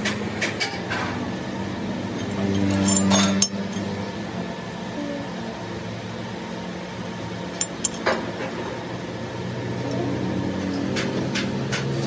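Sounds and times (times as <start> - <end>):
workshop hum: 0.0 - 12.0
metal gears clinking: 2.0 - 4.0, 7.5 - 8.3.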